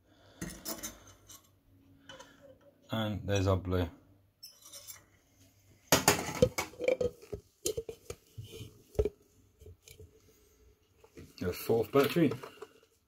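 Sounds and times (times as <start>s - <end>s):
scrape or rattle: 4.4s - 5.1s.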